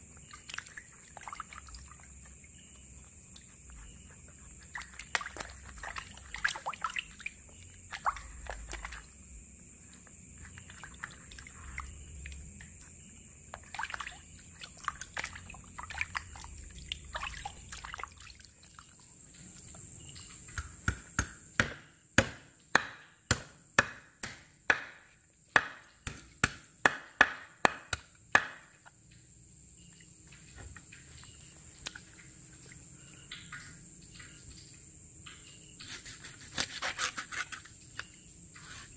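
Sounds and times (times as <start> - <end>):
water splashing in a basin: 0.0 - 20.9, 28.4 - 37.1
knife chopping on wooden board: 20.5 - 28.7.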